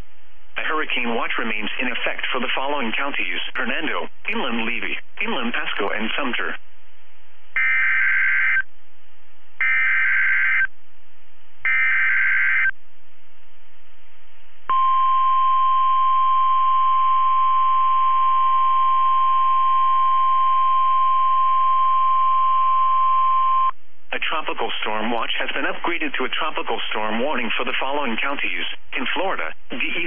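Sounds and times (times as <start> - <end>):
digital header tone pulses: 7.6 - 8.6, 9.6 - 10.7, 11.6 - 12.7
steady warning alarm tone: 7.6 - 8.6, 9.6 - 10.7, 11.6 - 12.7, 14.7 - 23.7.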